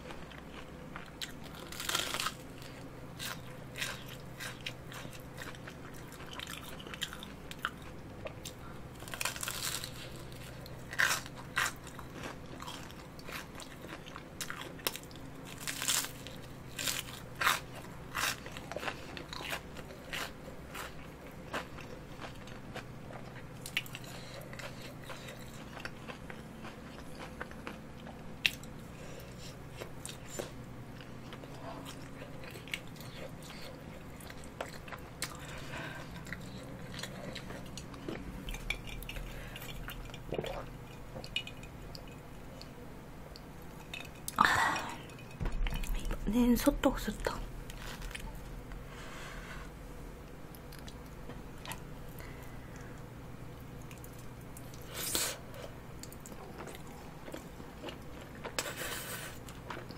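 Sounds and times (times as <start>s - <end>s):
chewing crispy food: 0.0s - 46.1s, 47.4s - 59.9s
crisp crunches: 1.0s - 5.2s, 9.0s - 20.9s, 47.6s - 48.8s.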